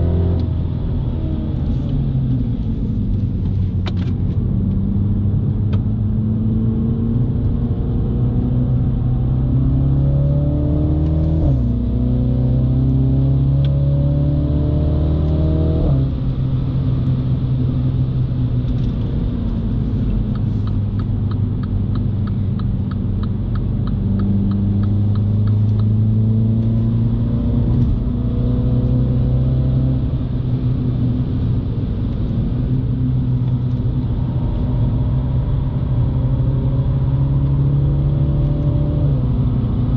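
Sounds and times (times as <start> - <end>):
car engine accelerating: 0.0 - 39.9.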